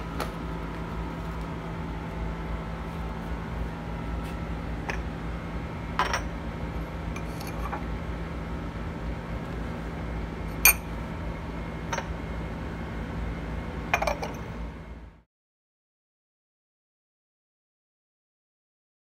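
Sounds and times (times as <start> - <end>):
steady low hum: 0.0 - 15.3
spoon clinking on ceramic bowl: 10.7 - 10.9.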